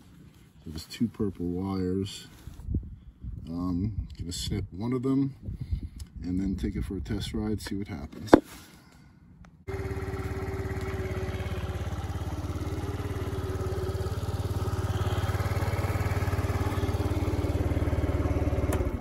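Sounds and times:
scooter engine running: 9.7 - 19.0.

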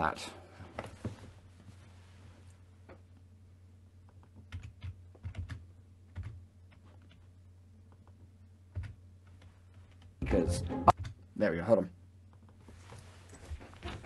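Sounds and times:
keyboard typing: 4.1 - 7.3, 7.9 - 10.1, 10.8 - 11.2.

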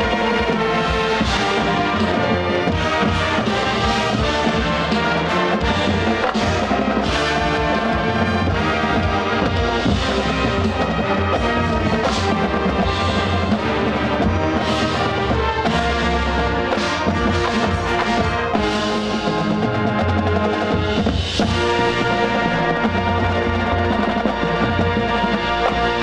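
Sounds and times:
brass chords: 0.0 - 26.0
marching band drum hits: 0.0 - 26.0.

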